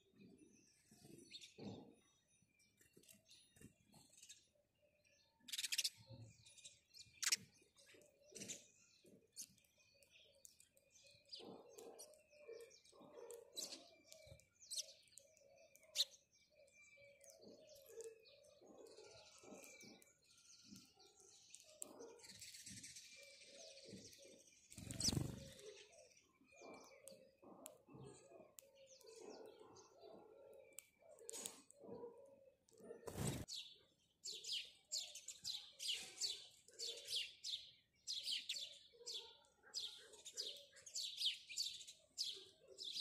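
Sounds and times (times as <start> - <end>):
sparrows chirping: 0.0 - 43.0
wings fluttering: 24.7 - 25.8, 33.0 - 33.6.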